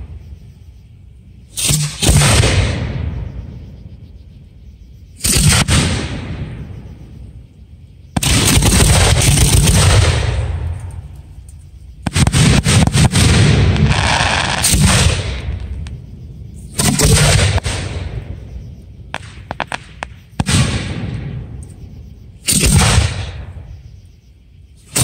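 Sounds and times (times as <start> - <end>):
fireworks booming: 1.4 - 4.0, 5.1 - 7.5, 8.1 - 23.8
small firework cracks: 19.1 - 21.0.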